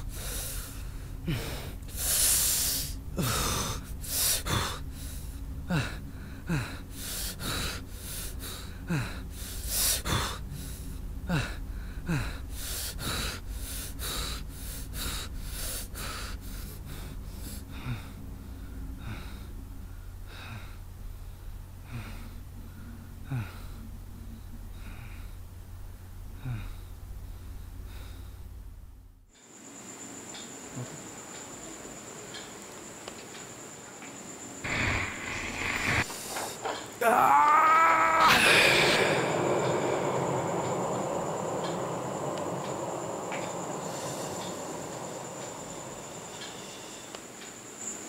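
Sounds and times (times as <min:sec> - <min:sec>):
man breathing heavily in gasps: 0:00.0 - 0:25.4, 0:38.3 - 0:47.1.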